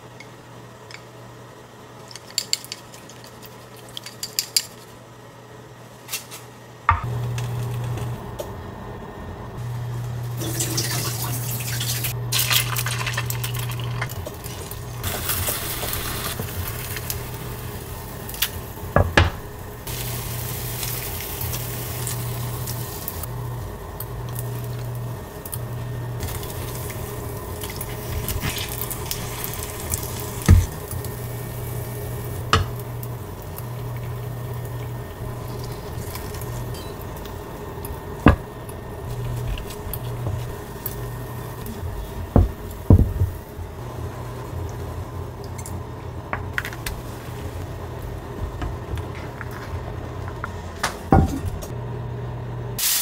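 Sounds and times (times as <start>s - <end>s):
low hum: 6.9s - 52.8s
egg sizzling in a pan: 10.0s - 45.8s.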